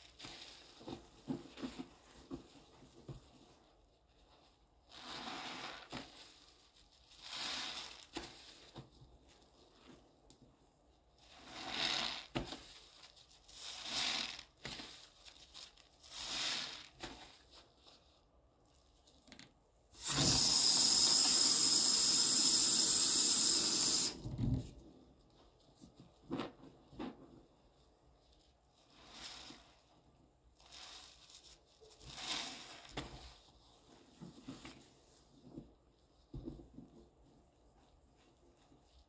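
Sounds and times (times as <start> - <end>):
sponge squelching: 4.8 - 8.8
faucet water rushing into sink: 20.0 - 24.2.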